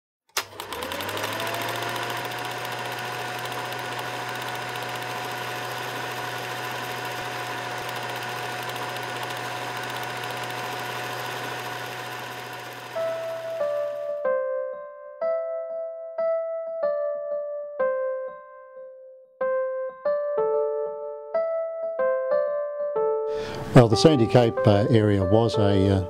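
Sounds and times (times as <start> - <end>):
film projector whirring and rattling: 0.3 - 14.2.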